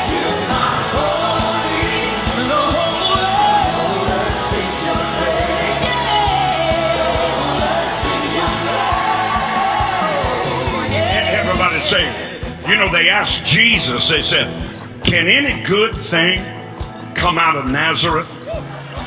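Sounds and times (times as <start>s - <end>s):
lead singer singing: 0.0s - 12.5s
steady drum beat: 0.0s - 17.4s
worship band playing: 0.0s - 19.0s.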